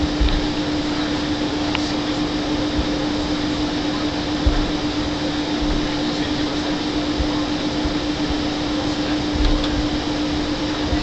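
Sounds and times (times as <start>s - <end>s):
low thumps: 0.0s - 0.6s, 2.5s - 3.6s, 4.2s - 11.0s
aircraft cabin engine rush: 0.0s - 11.0s
constant hum: 0.0s - 11.0s.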